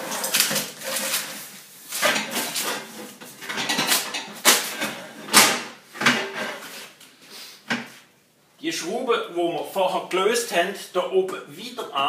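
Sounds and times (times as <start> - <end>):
frame rustling and clattering: 0.0 - 6.9.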